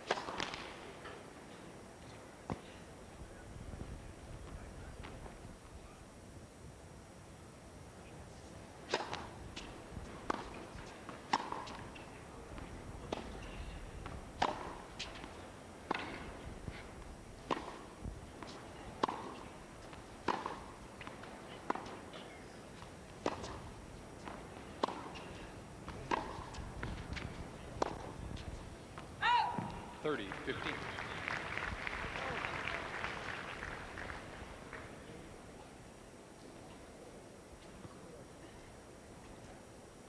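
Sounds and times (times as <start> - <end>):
tennis ball hits and bounces: 0.0 - 1.2, 8.8 - 29.9.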